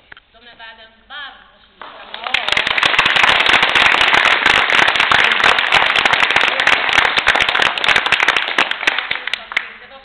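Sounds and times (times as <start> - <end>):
audience applauding: 2.0 - 9.8.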